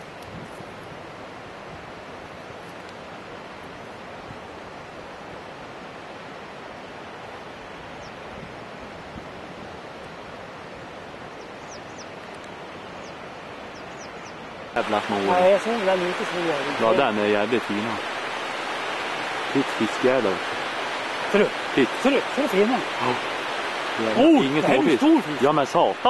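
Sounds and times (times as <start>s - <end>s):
river current rushing: 0.0s - 26.0s.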